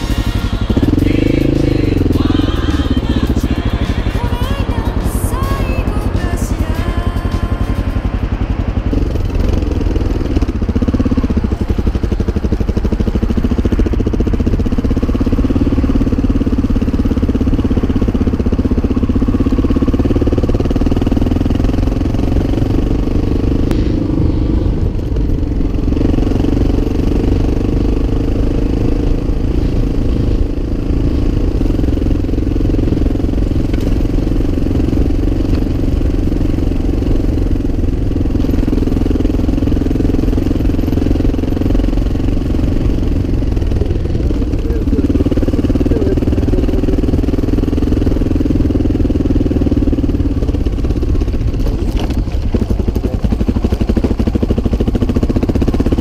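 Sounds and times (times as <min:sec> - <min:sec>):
motorcycle engine running: 0:00.0 - 0:56.0.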